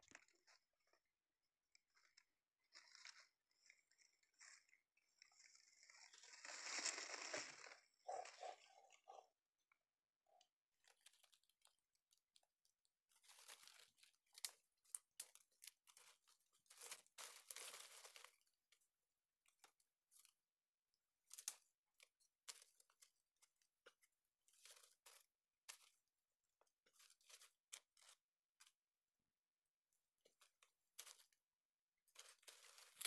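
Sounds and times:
dry leaves rustling and crackling: 5.3 - 8.6, 16.7 - 18.3, 32.2 - 33.0.

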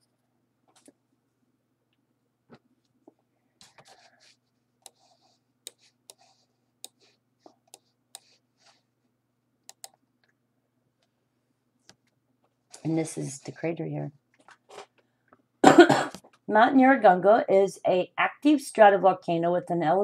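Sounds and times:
faint electrical hum: 0.0 - 20.0
computer mouse clicks: 4.8 - 8.4, 9.6 - 10.4.

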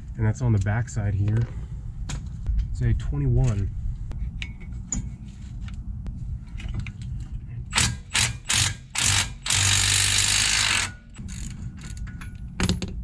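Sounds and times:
cordless ratchet bursts: 7.7 - 12.0.

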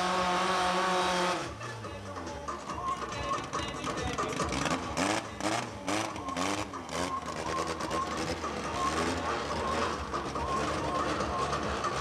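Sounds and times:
car engine at low revs: 0.0 - 12.0.

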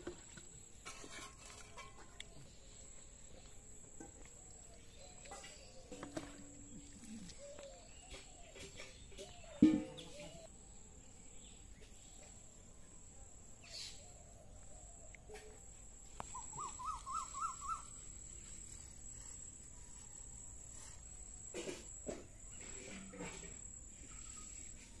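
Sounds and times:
warbling bird call: 16.3 - 17.9.

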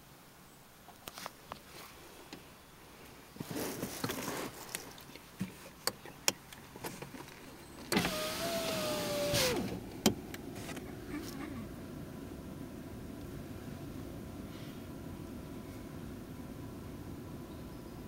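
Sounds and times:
rustles and light knocks: 0.8 - 8.0, 9.4 - 11.4
electric window motor whining: 7.9 - 9.8.

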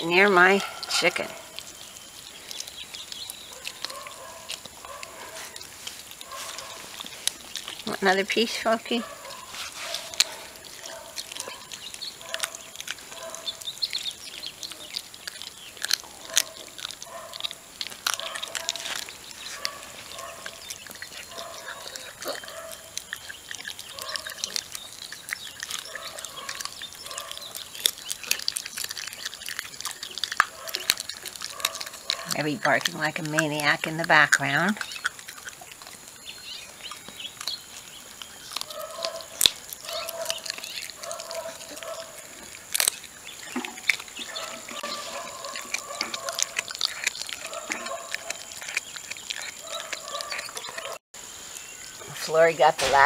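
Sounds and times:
puppy chewing and crunching bone: 0.0 - 53.0
dog barking: 3.5 - 5.6, 6.2 - 6.9, 9.0 - 13.6, 16.2 - 17.5, 18.1 - 20.6, 21.3 - 22.9, 23.9 - 24.5, 25.8 - 27.6, 30.4 - 32.4, 38.7 - 42.4, 44.3 - 48.7, 49.4 - 51.0.

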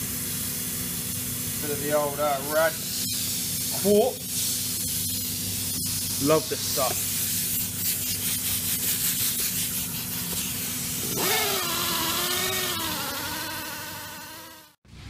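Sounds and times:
polisher rubbing hiss: 0.0 - 14.7
polisher motor whine: 11.0 - 14.8.

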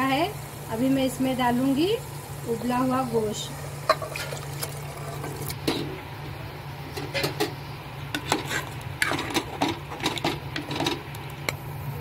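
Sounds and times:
ladle scraping metal pot: 3.9 - 5.9, 8.1 - 11.0.

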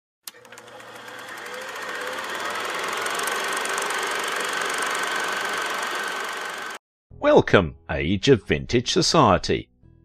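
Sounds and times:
film projector clatter and whir: 0.2 - 6.8.

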